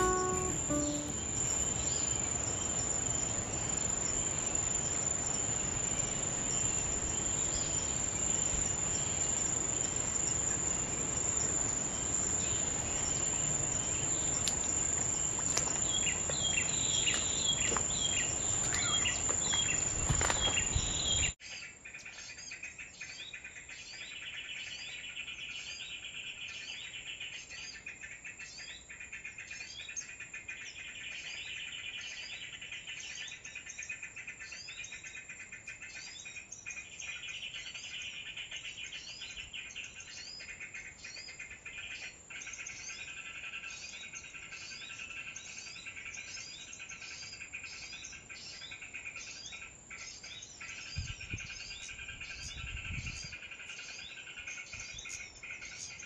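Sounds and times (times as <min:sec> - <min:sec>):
bird chirps: 0:00.0 - 0:02.8, 0:14.0 - 0:21.4
small-bird chirps: 0:00.0 - 0:02.8, 0:13.8 - 0:21.4
high insect drone: 0:00.0 - 0:21.3
buzzing insect chorus: 0:01.4 - 0:21.3.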